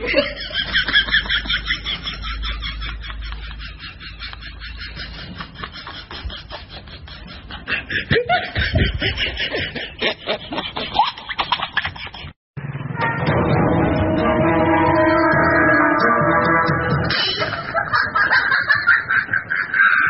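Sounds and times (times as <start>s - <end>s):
music: 12.6s - 18.7s
pitch-bending vocal sounds: 13.0s - 17.8s.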